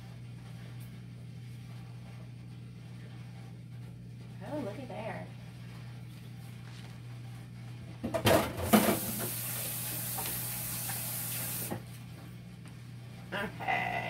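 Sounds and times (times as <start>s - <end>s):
kitchen tap running: 8.3s - 11.8s.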